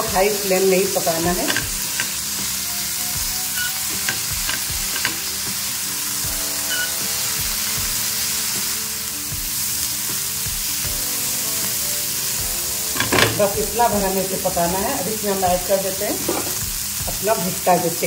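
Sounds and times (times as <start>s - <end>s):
vegetables sizzling in a frying pan: 0.0s - 18.0s
spatula tapping on pan: 1.4s - 2.2s, 4.0s - 5.3s.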